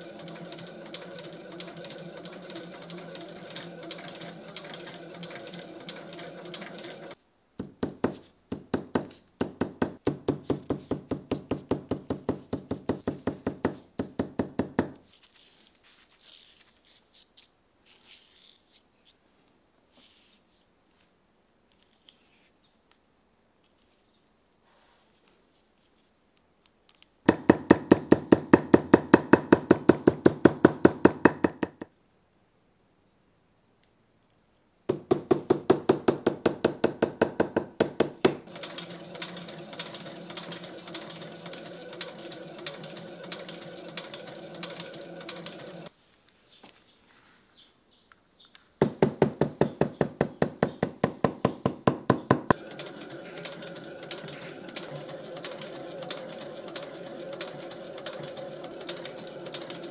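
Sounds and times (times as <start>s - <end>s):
sewing machine motor hum: 0.0s - 7.2s, 35.2s - 45.9s, 52.3s - 59.9s
sewing machine needle strokes: 0.0s - 7.2s, 38.2s - 45.9s, 52.5s - 59.9s.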